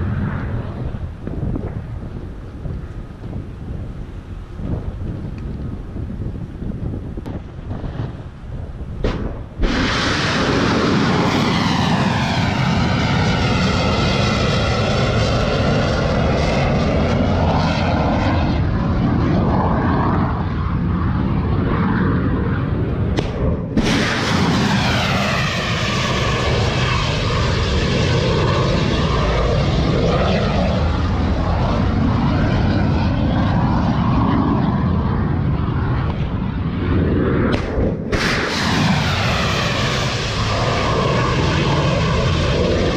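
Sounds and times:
rocket motor roar: 7.1s - 42.9s
missile whoosh: 9.0s - 12.2s, 23.1s - 26.4s, 37.0s - 42.5s.

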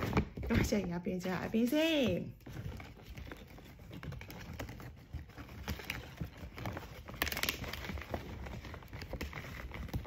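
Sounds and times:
plastic sack rustling and crackling: 0.0s - 10.0s.

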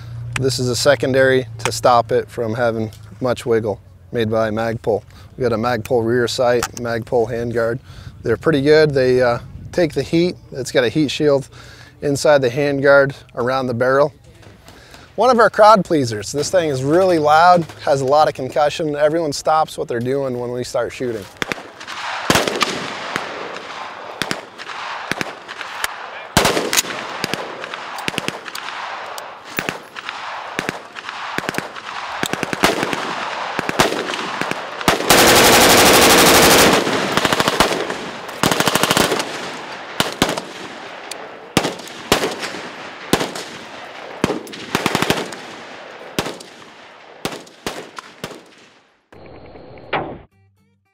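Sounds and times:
gunshots and short bursts: 21.2s - 48.9s
rifle full-auto burst: 21.4s - 48.7s.

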